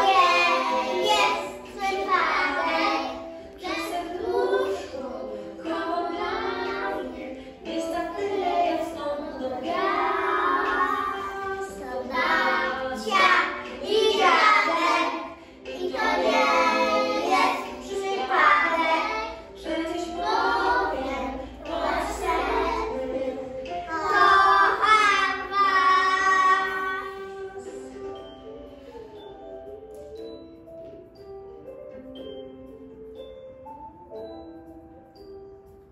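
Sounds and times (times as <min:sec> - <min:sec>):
children singing in unison: 0:00.0 - 0:28.0.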